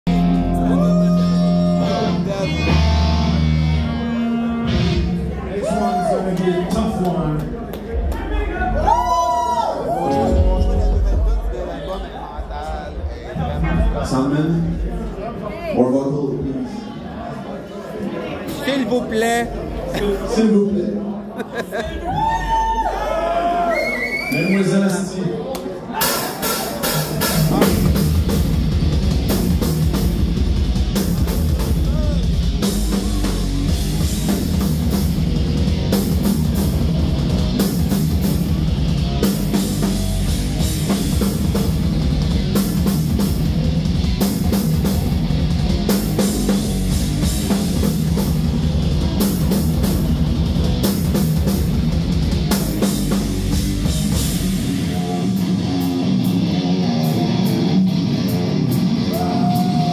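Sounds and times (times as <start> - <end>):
bass guitar: 0.0 - 6.8, 7.4 - 15.7, 25.9 - 59.9
electric guitar: 0.1 - 5.4, 26.0 - 59.9
drum kit with cymbals: 26.0 - 57.6.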